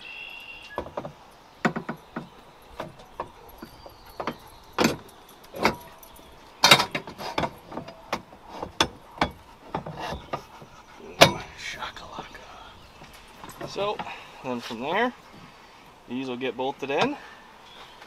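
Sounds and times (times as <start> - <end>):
metal clinks and knocks: 0.8 - 11.6, 12.9 - 14.2.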